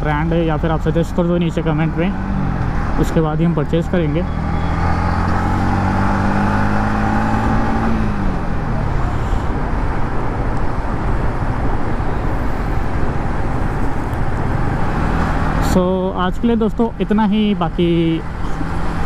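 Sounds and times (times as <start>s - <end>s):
motorcycle engine: 0.0s - 16.2s
road noise: 0.0s - 19.0s
wind noise: 4.4s - 15.6s.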